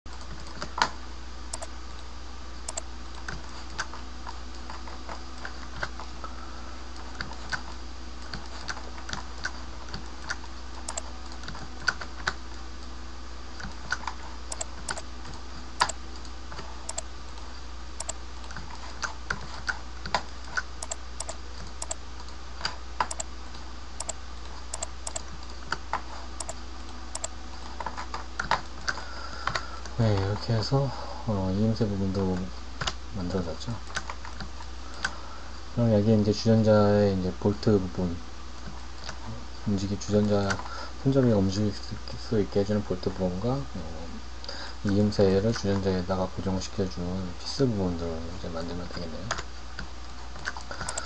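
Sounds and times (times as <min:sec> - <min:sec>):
steady electrical hum: 0:00.1 - 0:51.0
computer keyboard clicks: 0:01.5 - 0:01.7, 0:07.2 - 0:12.4, 0:19.3 - 0:23.3, 0:24.0 - 0:25.8, 0:26.4 - 0:27.3, 0:50.4 - 0:51.0.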